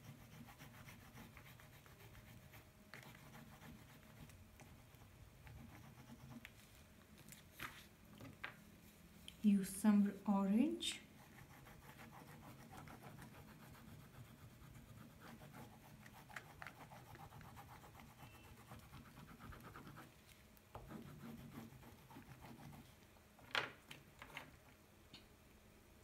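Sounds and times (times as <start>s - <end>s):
pastel stick scratching on paper: 0.0s - 6.7s, 11.2s - 20.2s, 20.8s - 22.9s.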